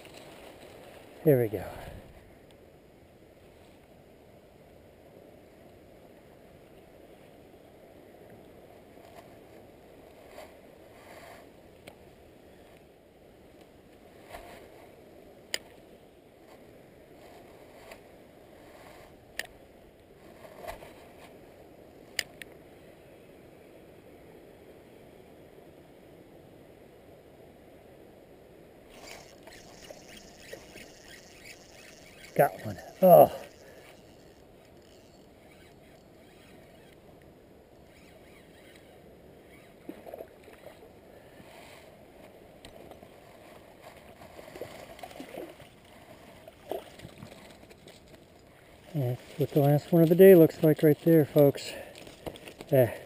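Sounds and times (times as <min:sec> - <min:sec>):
river flowing: 0:00.0 - 0:02.1, 0:28.7 - 0:53.0
fishing reel clicks: 0:28.9 - 0:37.0.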